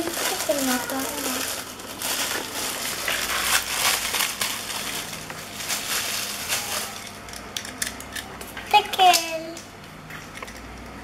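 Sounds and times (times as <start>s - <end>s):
bag being torn and crumpled: 0.0s - 7.1s.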